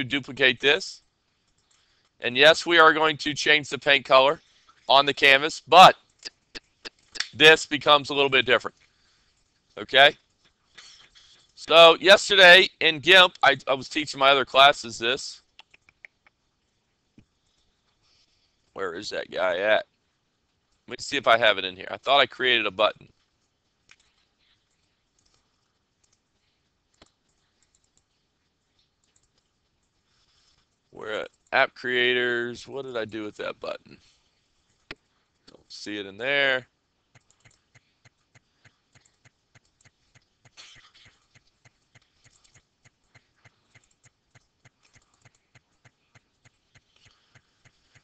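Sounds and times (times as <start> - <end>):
computer mouse clicks: 15.4 - 16.4, 23.9 - 30.7, 37.1 - 48.0
faint ticks: 23.0 - 31.6, 37.1 - 48.0.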